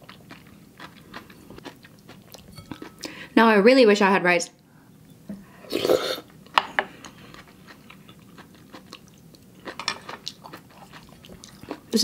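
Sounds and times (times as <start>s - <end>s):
chewing with wet mouth clicks: 0.0s - 3.1s, 7.3s - 11.9s
person slurping soup: 5.6s - 6.2s.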